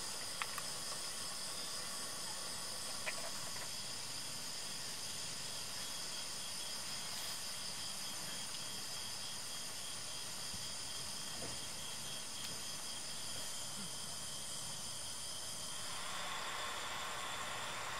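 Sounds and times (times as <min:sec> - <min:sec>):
faint clicks: 0:00.2 - 0:01.1
gas stove burner hiss: 0:14.2 - 0:17.9.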